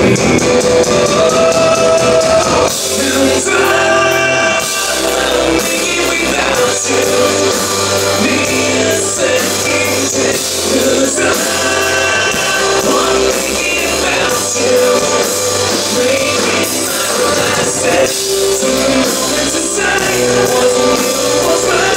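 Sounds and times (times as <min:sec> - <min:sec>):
live rock band: 0:00.0 - 0:21.9
man singing: 0:00.0 - 0:21.9.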